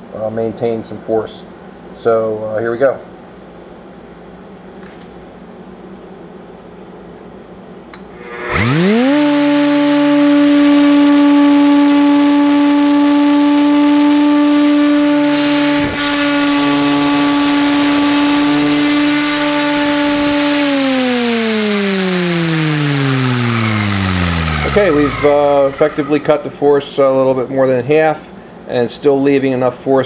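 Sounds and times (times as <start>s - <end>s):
router motor whine: 8.0s - 26.7s.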